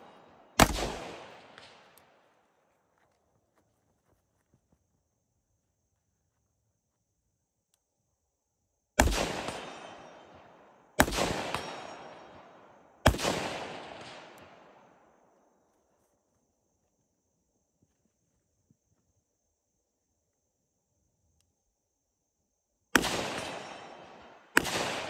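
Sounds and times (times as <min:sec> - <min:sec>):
gunshot echo: 0:00.0 - 0:01.9, 0:09.0 - 0:12.5, 0:23.0 - 0:25.0
rifle shots: 0:00.0 - 0:02.0, 0:09.0 - 0:14.7, 0:23.0 - 0:25.0.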